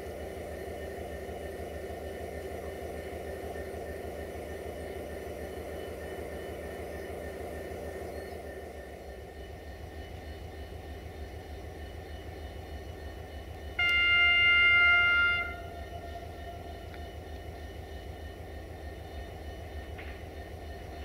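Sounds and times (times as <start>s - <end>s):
low train rumble: 0.0s - 21.0s
train horn blast: 13.8s - 17.0s.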